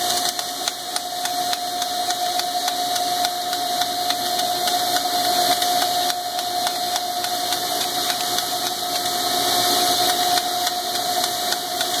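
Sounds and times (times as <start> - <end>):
grinder whine: 0.0 - 12.0
grinding and coolant spray hiss: 0.0 - 12.0.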